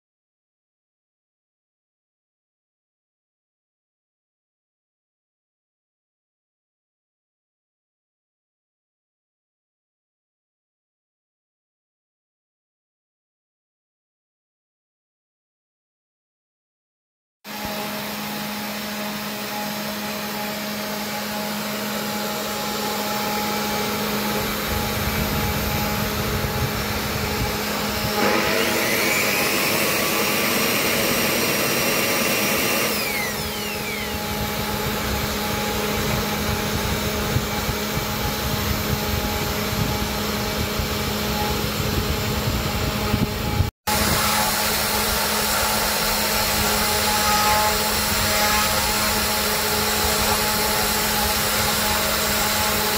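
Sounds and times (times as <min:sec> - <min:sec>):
bit cutting wood: 0:17.5 - 0:52.9
router motor humming: 0:17.5 - 0:52.9
high-pitched whine: 0:20.1 - 0:52.9.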